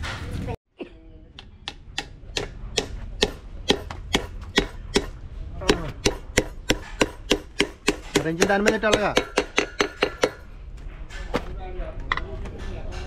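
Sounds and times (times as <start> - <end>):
hammer striking metal: 1.4 - 10.5.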